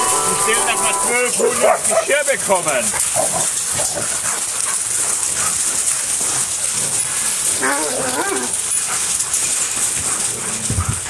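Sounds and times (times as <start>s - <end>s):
background hiss: 0.0s - 10.8s
dogs whining and yelping: 3.0s - 11.0s.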